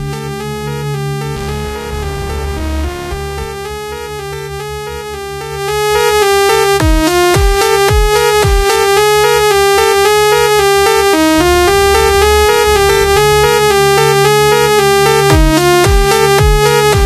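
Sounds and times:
deep bass-drum hits: 0:00.0 - 0:05.9, 0:11.2 - 0:17.0
low sustained bass: 0:00.0 - 0:07.3, 0:10.9 - 0:16.9
synthesizer melody: 0:00.0 - 0:17.0.

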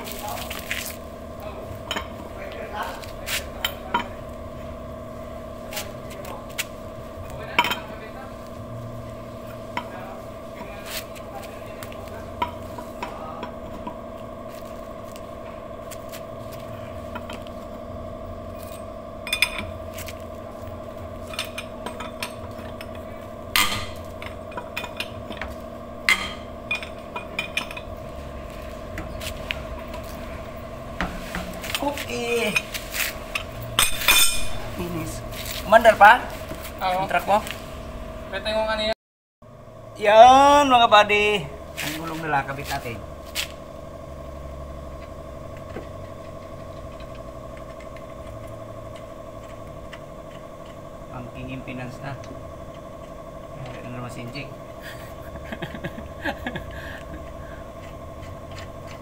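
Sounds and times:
steady hum: 0:00.0 - 0:59.0
lug wrench clinking on lug nuts: 0:21.2 - 0:28.0.

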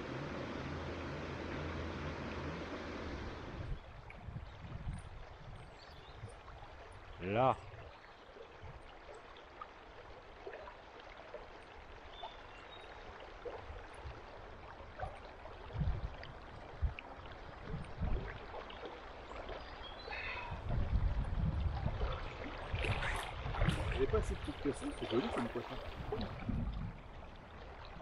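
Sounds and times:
river water rushing: 0:00.0 - 0:03.7, 0:22.1 - 0:26.4.

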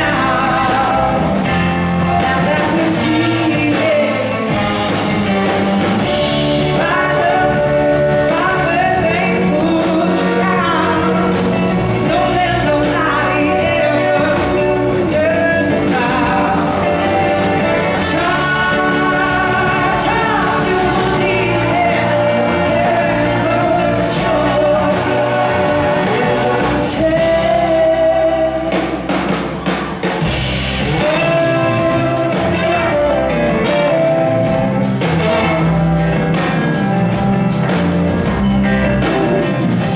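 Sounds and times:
woman singing: 0:00.0 - 0:05.5, 0:06.3 - 0:29.4, 0:30.9 - 0:33.0
live blues-rock band: 0:00.0 - 0:39.9.

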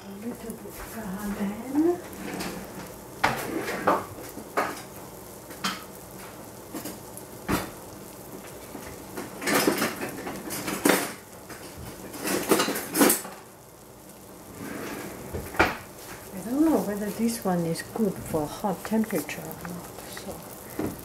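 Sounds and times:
metal cookware clattering: 0:12.1 - 0:13.4.

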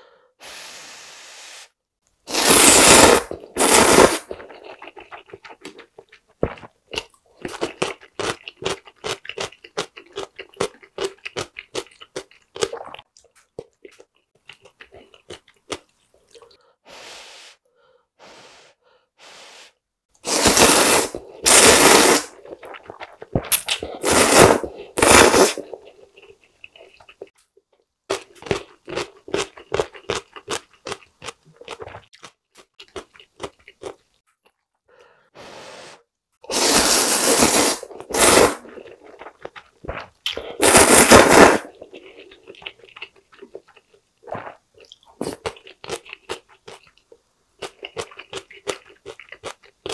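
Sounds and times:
noodle slurping: 0:02.3 - 0:06.7, 0:20.2 - 0:27.3, 0:36.5 - 0:46.4
chewing with wet mouth clicks: 0:04.3 - 0:16.6, 0:41.8 - 0:49.9.

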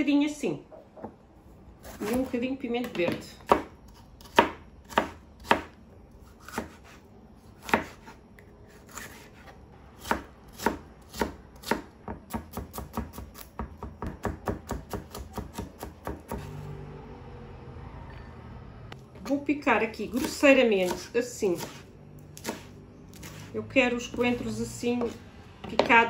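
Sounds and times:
knife chopping on cutting board: 0:02.9 - 0:05.8, 0:06.4 - 0:07.0, 0:07.6 - 0:16.6, 0:20.1 - 0:23.5.

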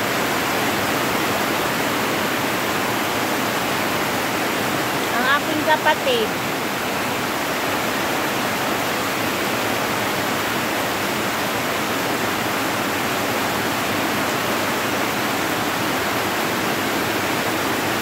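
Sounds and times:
heavy rain pouring: 0:00.0 - 0:18.0.

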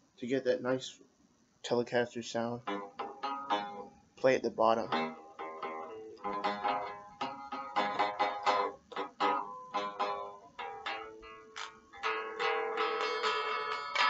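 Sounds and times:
clean electric guitar notes: 0:02.6 - 0:03.9, 0:04.8 - 0:14.0.

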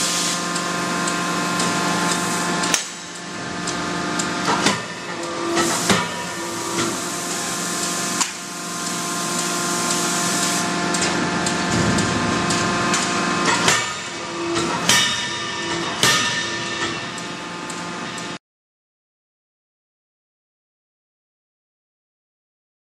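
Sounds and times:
machinery hum: 0:00.0 - 0:18.4
forging hammer blows: 0:11.6 - 0:17.3.

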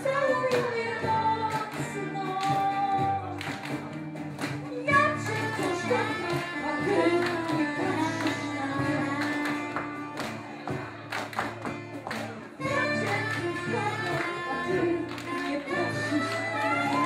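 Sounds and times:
woman singing: 0:00.0 - 0:03.8, 0:04.6 - 0:10.2, 0:12.6 - 0:17.0
band with steady bass: 0:00.0 - 0:17.0.

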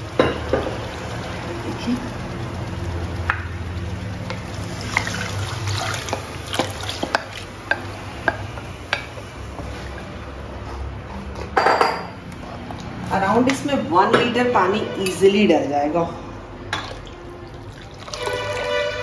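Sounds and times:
liquid pouring into a pan: 0:02.2 - 0:07.7, 0:16.7 - 0:19.0
wooden spatula stirring and clicking: 0:06.0 - 0:10.1.

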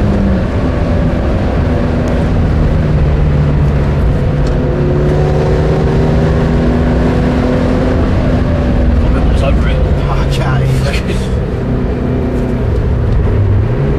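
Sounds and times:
car engine pulling hard: 0:00.0 - 0:13.9.

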